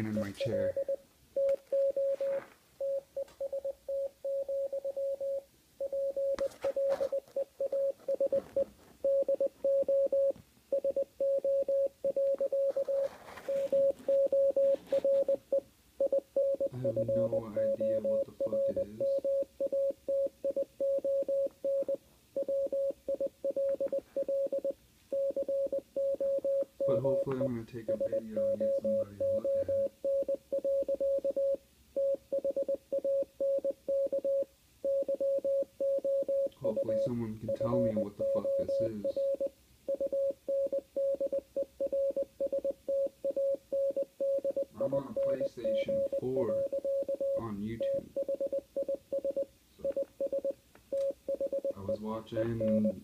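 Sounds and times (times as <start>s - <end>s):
morse-like beeping tone: 16.0s - 19.9s, 23.6s - 29.9s, 36.6s - 40.3s, 44.5s - 50.5s.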